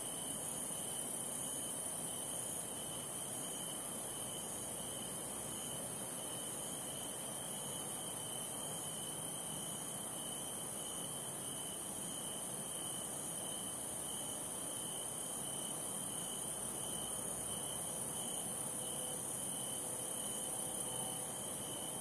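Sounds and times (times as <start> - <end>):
insect chirp pulsing: 0.0 - 9.1.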